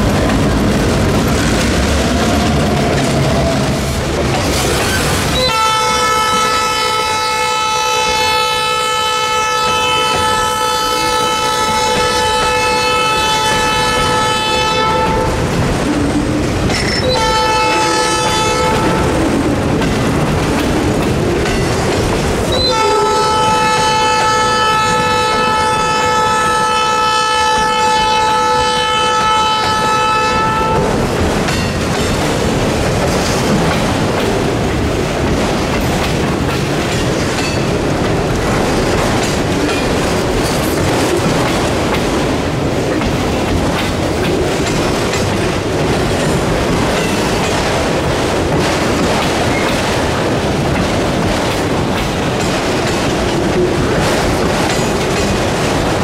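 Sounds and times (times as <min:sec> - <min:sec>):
freight train wheels clattering on rail: 0:00.0 - 0:56.0
locomotive horn blast: 0:05.4 - 0:15.4, 0:17.0 - 0:19.2, 0:22.5 - 0:31.0.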